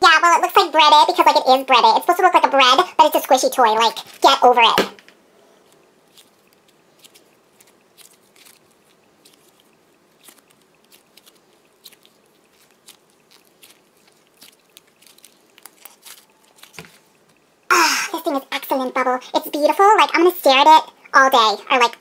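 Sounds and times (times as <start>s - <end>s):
foam crackling and popping: 6.1s - 17.4s.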